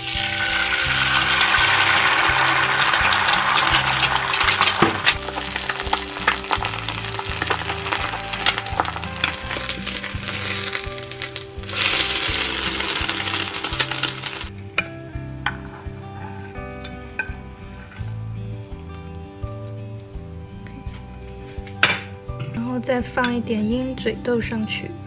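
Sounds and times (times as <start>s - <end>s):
egg sizzling in oil: 0.0s - 14.5s.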